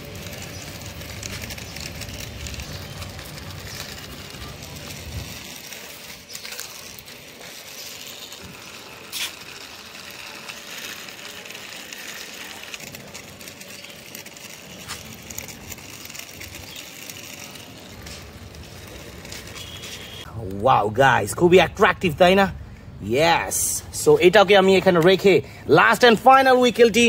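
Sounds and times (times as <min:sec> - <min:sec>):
toy and packaging clicks and rustling: 0:00.0 - 0:20.3.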